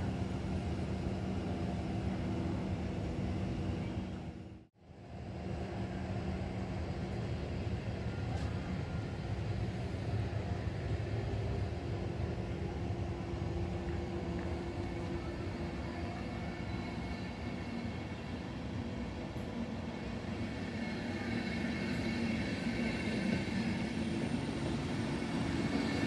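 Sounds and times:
train wheels rumbling: 0:05.3 - 0:26.0.

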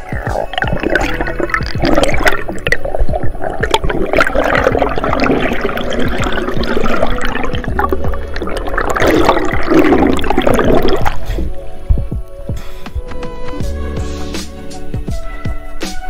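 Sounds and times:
small underwater clicks and knocks: 0:00.0 - 0:12.4
underwater bubbles and rushing water: 0:00.0 - 0:12.5.

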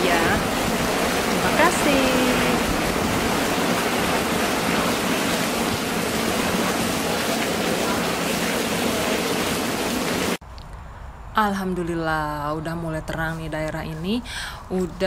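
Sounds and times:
heavy rain: 0:00.0 - 0:10.4.

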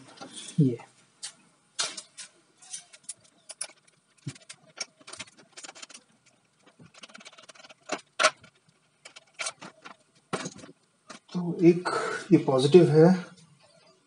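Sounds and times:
metal cables clicking and clinking: 0:01.2 - 0:11.4.

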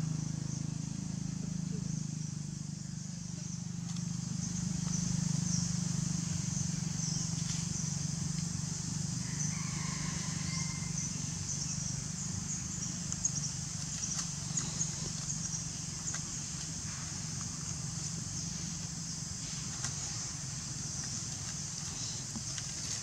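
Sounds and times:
insects chirring: 0:00.0 - 0:23.0
leaf rustles and clicks: 0:12.7 - 0:23.0.

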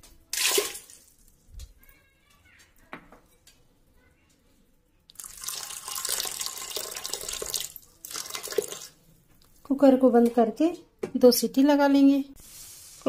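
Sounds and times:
water pouring into metal pot: 0:00.3 - 0:01.2, 0:05.1 - 0:09.0.

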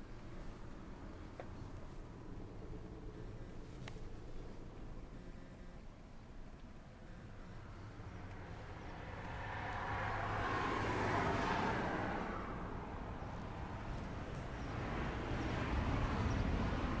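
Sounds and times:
vehicle approaching: 0:00.0 - 0:17.0
car passing: 0:07.0 - 0:17.0.

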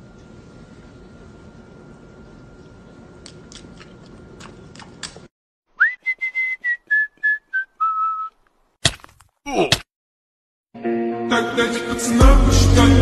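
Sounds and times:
person whistling a tune: 0:05.8 - 0:08.4.

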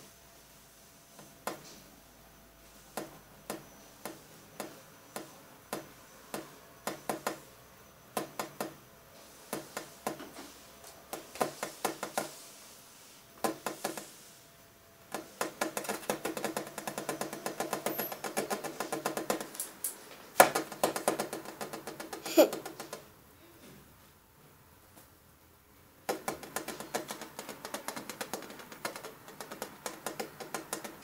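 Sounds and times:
sharp knocking clicks: 0:15.1 - 0:19.7, 0:20.4 - 0:23.0, 0:26.1 - 0:31.0.

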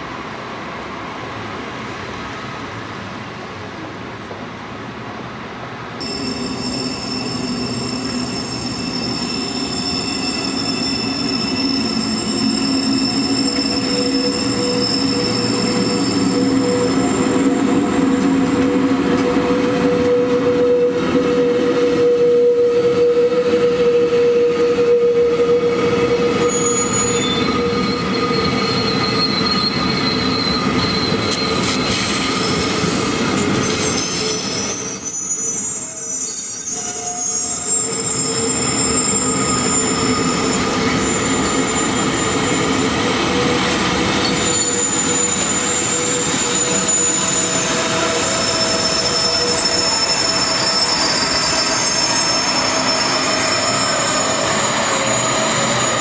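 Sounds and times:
train running noise: 0:00.0 - 0:56.0
train wheels squealing: 0:06.0 - 0:56.0.

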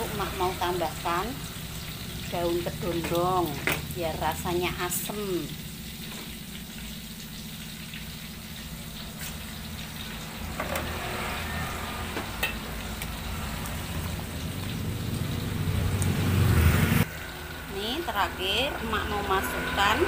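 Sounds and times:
soup boiling in a pot: 0:00.0 - 0:20.0.

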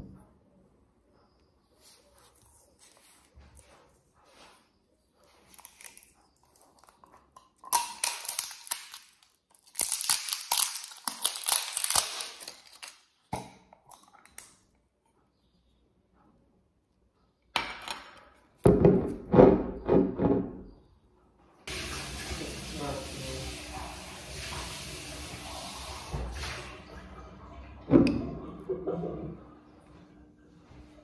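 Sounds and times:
jar seal crinkling and tearing: 0:05.5 - 0:14.6.

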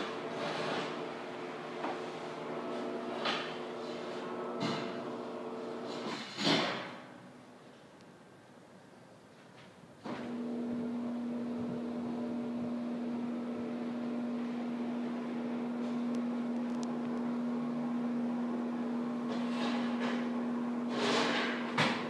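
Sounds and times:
screen motor humming: 0:10.3 - 0:21.1.

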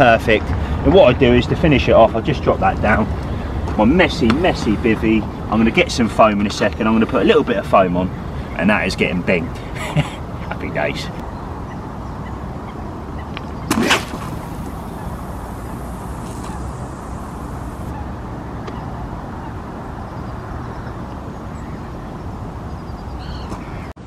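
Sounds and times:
fishing rod swish: 0:13.7 - 0:15.2
line hissing off reel: 0:13.7 - 0:17.9.

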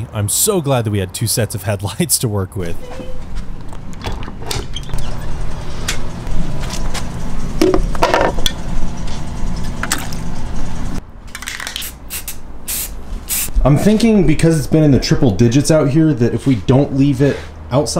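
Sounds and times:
steady low hum: 0:02.5 - 0:11.2
aerosol spray can hissing: 0:11.8 - 0:13.5.

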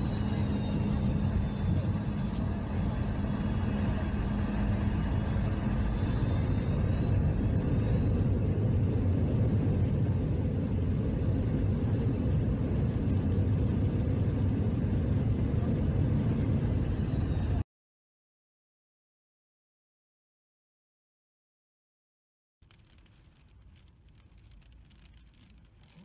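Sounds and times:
jet engines and wheels rumbling: 0:00.0 - 0:17.6
thin high whine: 0:00.0 - 0:17.6.

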